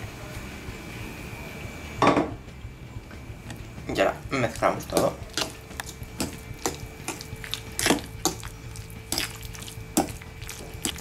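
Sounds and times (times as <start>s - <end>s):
fork clinking and scraping bowl: 4.9s - 11.0s.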